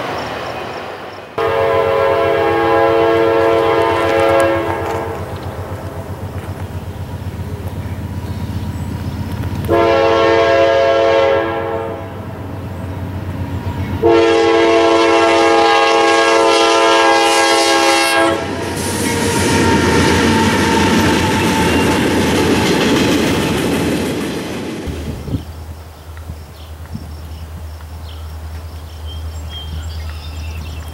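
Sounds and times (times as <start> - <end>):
train rumbling past: 0.0 - 30.9
train air horn blasts: 1.4 - 5.4, 9.7 - 12.3, 14.0 - 22.0
wheels clacking over rail joints: 3.2 - 10.0, 18.5 - 29.3.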